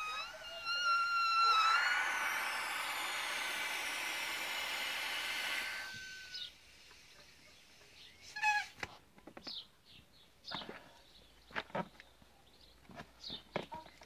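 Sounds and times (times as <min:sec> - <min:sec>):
faint thin whistle: 0:00.0 - 0:03.0, 0:05.5 - 0:06.6
short high chirps or squeaks: 0:00.0 - 0:06.6
gas hissing into a balloon: 0:00.0 - 0:07.1.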